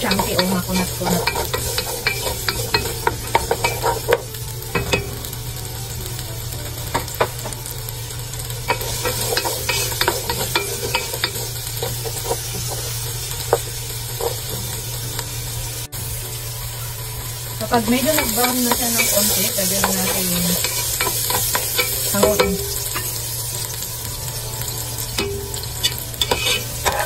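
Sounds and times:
vegetables sizzling in oil: 0.0s - 27.0s
wooden spatula scraping pan: 25.8s - 27.0s.

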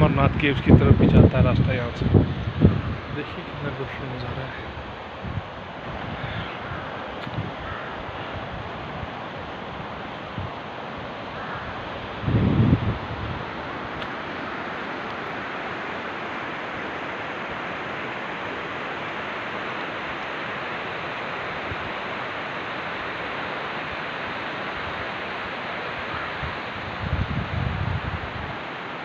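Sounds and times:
river rapids rushing over rocks: 2.4s - 29.0s.

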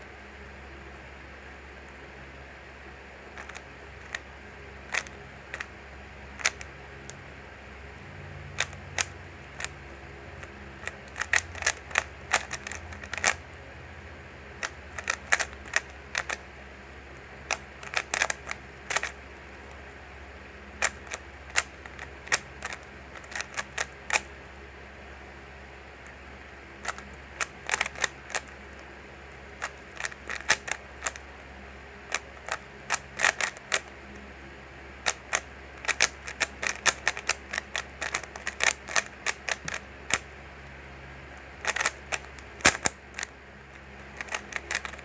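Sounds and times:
faint low hum: 0.0s - 45.0s
puzzle cube layers clicking: 3.3s - 4.2s, 4.9s - 5.7s, 6.4s - 6.7s, 8.6s - 9.7s, 10.8s - 13.4s, 14.6s - 16.4s, 17.5s - 19.2s, 20.8s - 24.3s, 26.8s - 28.8s, 29.6s - 31.2s, 32.1s - 33.9s, 35.0s - 40.2s, 41.6s - 45.0s.

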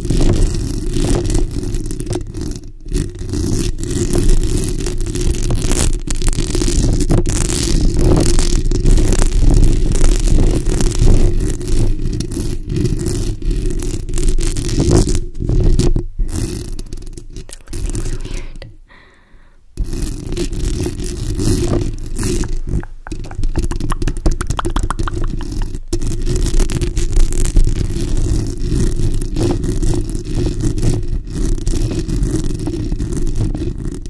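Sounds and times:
fingernails scratching microphone grille: 19.8s - 33.9s
quick fingernail taps: 22.7s - 25.8s.

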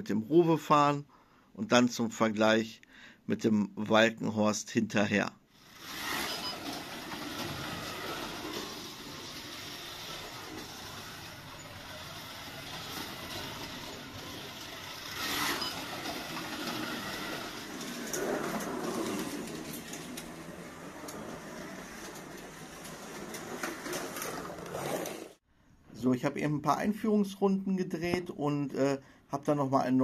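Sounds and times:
slot car running on track: 5.6s - 25.4s.

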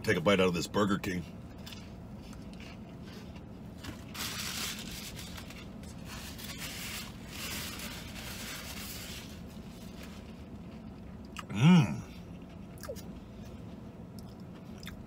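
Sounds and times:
steady low hum: 0.0s - 15.0s
person chewing: 1.5s - 3.5s, 10.6s - 15.0s.

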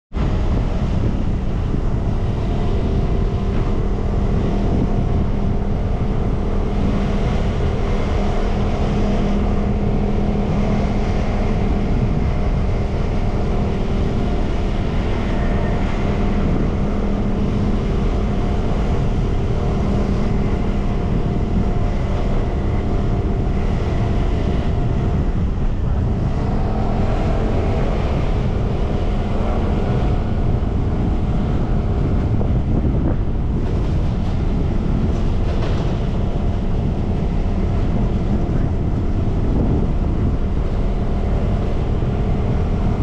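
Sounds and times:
constant hum: 0.1s - 43.0s
vehicle road noise: 0.1s - 43.0s
wind on microphone: 0.1s - 43.0s.

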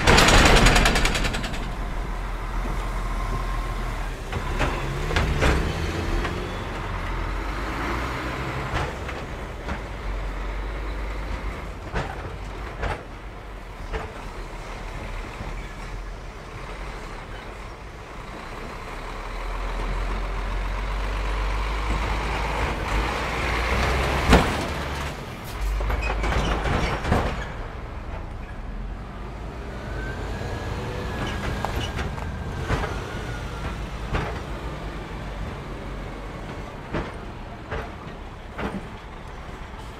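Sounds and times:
wheels knocking over rails: 0.0s - 3.4s
diesel engine rumble: 0.0s - 39.9s.

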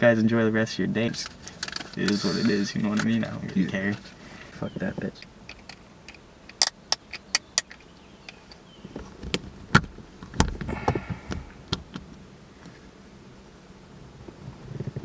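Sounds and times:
dull thump: 8.9s - 12.0s.

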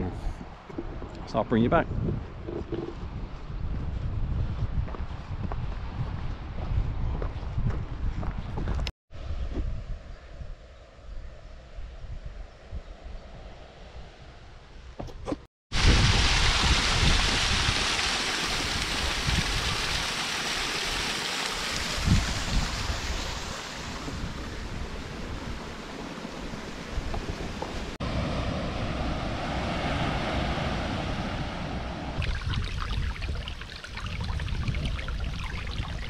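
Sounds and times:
wind buffeting microphone: 0.0s - 14.0s, 15.7s - 20.0s, 21.8s - 28.0s, 31.3s - 36.0s
sea surf washing onto beach: 15.8s - 36.0s.

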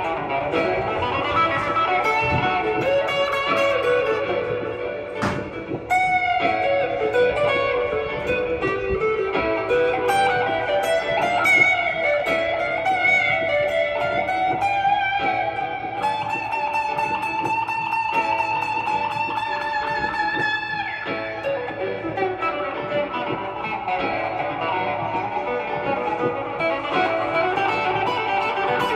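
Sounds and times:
acoustic guitar picking: 0.0s - 28.9s
sharp click: 5.2s - 5.8s.

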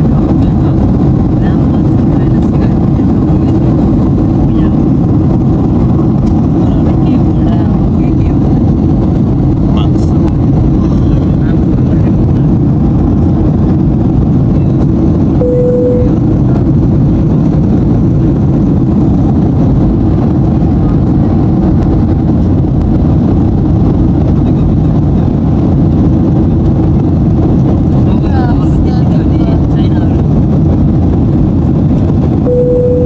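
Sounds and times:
airliner cabin engine rush: 0.0s - 33.0s
short steady tone: 15.4s - 16.2s, 32.4s - 33.0s.

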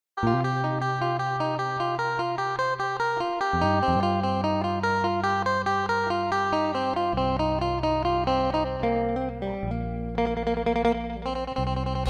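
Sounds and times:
plucked notes: 0.2s - 12.0s
held bass note: 3.6s - 4.7s.

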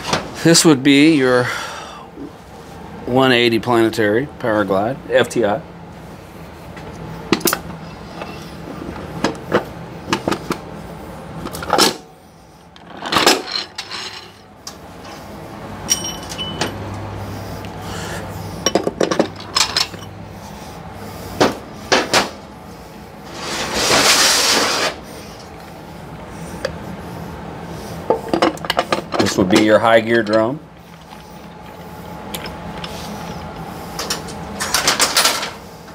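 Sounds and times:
metal parts clinking and knocking: 12.8s - 14.4s, 15.9s - 16.8s, 18.6s - 20.2s, 34.0s - 35.6s
metal scraping rattle: 23.3s - 25.5s.

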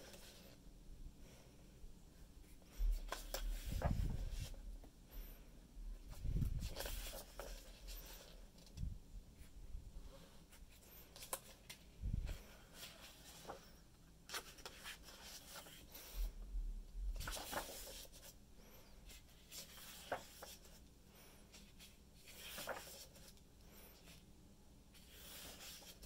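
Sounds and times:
book pages rustling: 2.7s - 4.6s, 6.0s - 8.8s, 10.8s - 13.7s, 14.3s - 16.2s, 17.2s - 18.4s, 19.1s - 20.8s, 21.5s - 23.4s, 24.9s - 26.0s.

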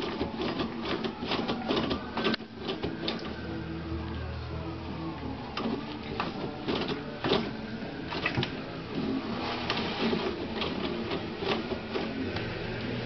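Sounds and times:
toilet paper roll spinning and rattling: 0.0s - 3.7s, 5.5s - 13.0s
low hum: 3.0s - 6.6s
paper rustling: 5.6s - 12.4s.

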